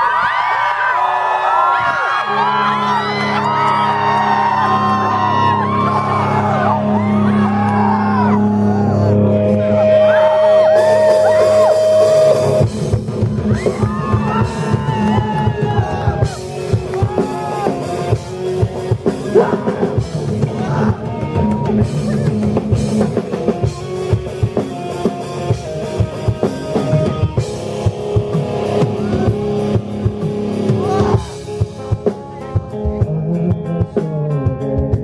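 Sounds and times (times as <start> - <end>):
electric guitar: 1.5 - 35.0
drum kit: 1.8 - 35.0.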